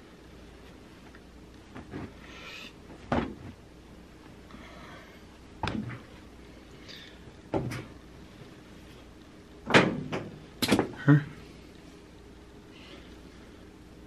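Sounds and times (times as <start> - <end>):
soft rustling: 0.0 - 4.5.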